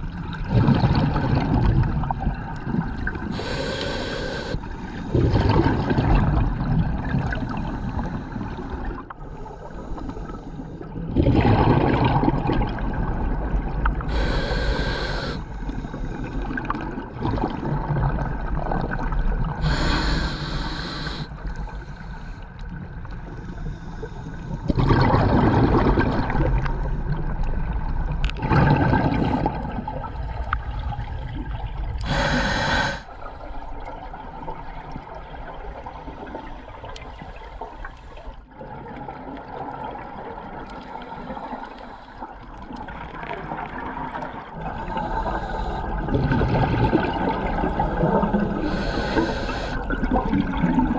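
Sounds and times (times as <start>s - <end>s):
exhaled bubbles: 0.0s - 21.3s, 24.5s - 41.5s, 42.3s - 50.9s
regulator inhale hiss: 3.3s - 5.1s, 14.1s - 16.5s, 19.6s - 22.4s, 32.0s - 33.2s, 44.9s - 46.0s, 48.6s - 49.8s.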